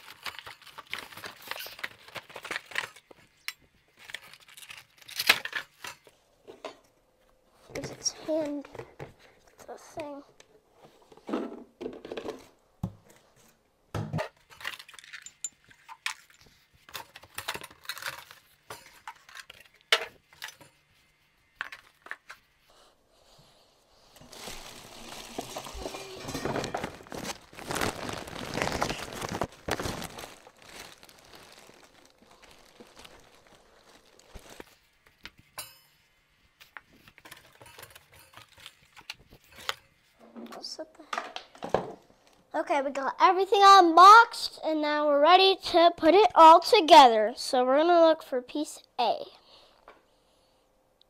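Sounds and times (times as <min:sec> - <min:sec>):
plastic wrapping crinkling: 0:00.0 - 0:06.2, 0:24.0 - 0:35.4
parts knocking and clattering: 0:25.6 - 0:27.2.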